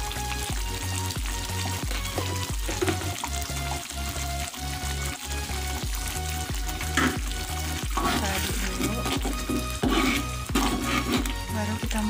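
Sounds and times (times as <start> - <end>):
sauce sizzling in a pan: 0.0 - 12.0
spatula clicking and scraping: 7.9 - 11.4.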